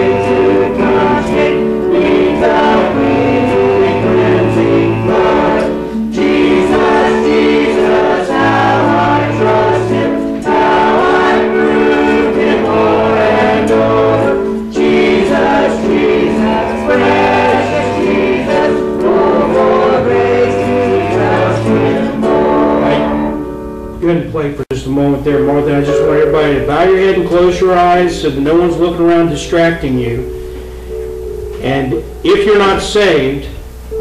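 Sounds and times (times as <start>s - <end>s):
congregation singing a hymn: 0.0s - 23.8s.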